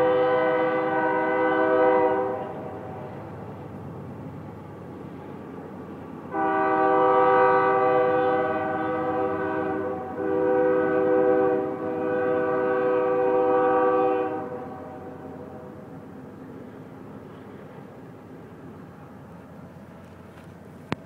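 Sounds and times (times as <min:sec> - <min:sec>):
locomotive air horn chord: 0:00.0 - 0:03.2, 0:06.3 - 0:15.7
passing train rumble: 0:00.0 - 0:21.0.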